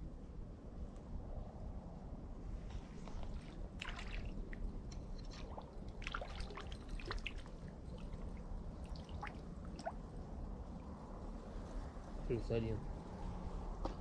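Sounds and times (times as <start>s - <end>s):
water trickling and dripping: 3.0s - 12.0s.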